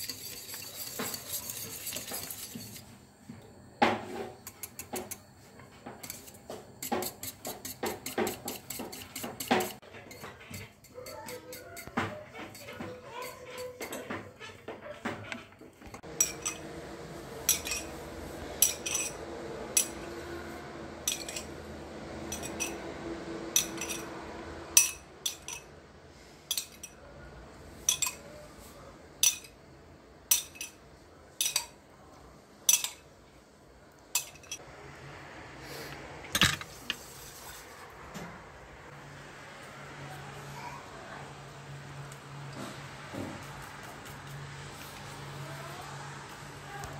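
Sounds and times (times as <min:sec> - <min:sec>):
wire whisk scraping a pan: 0:00.0 - 0:03.0, 0:06.0 - 0:15.4, 0:17.4 - 0:18.0, 0:18.6 - 0:21.5
metal spoon clinking on glass: 0:16.2 - 0:16.6, 0:17.5 - 0:17.9, 0:18.6 - 0:19.2, 0:21.1 - 0:21.5, 0:22.3 - 0:22.8, 0:23.6 - 0:24.1, 0:24.8 - 0:25.7, 0:26.5 - 0:27.0, 0:27.9 - 0:28.3, 0:29.2 - 0:29.6, 0:30.3 - 0:30.8, 0:31.4 - 0:31.8, 0:32.7 - 0:33.0, 0:34.1 - 0:34.6.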